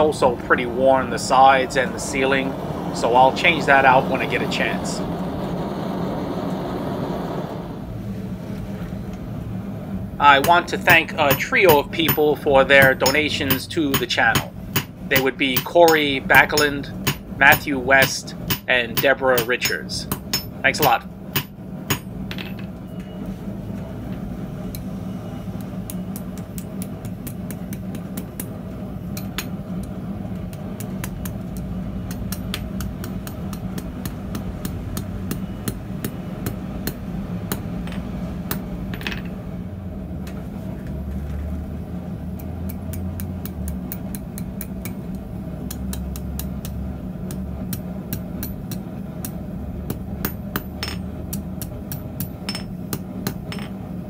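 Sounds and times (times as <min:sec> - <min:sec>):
low hum: 0:00.0 - 0:54.0
hammer striking metal on anvil: 0:10.3 - 0:22.7, 0:32.1 - 0:39.3, 0:45.7 - 0:53.8.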